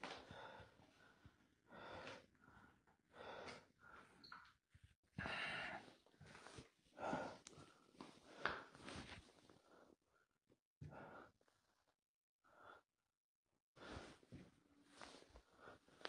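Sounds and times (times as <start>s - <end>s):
person breathing heavily: 5.2s - 8.8s.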